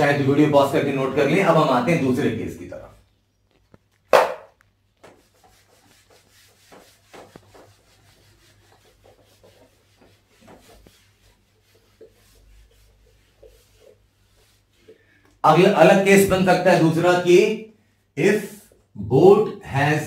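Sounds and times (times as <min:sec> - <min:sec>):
loud knock: 0:04.1 - 0:04.6
eraser rubbing whiteboard: 0:04.9 - 0:15.8.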